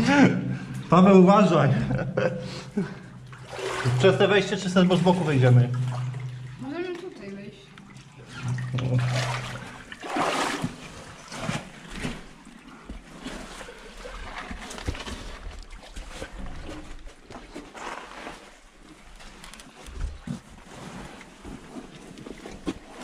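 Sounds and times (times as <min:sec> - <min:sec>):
people wading through water: 0:01.6 - 0:17.2.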